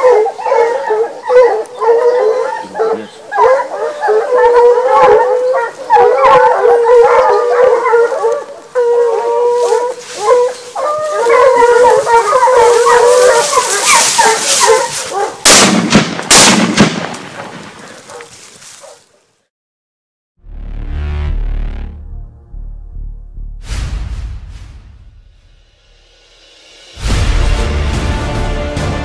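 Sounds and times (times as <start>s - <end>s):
hounds baying and howling: 0.0s - 15.5s, 17.8s - 19.2s.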